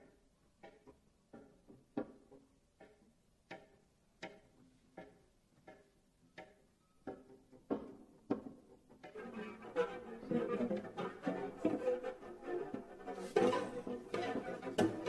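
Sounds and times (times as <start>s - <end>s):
plucked string notes: 9.0s - 15.0s.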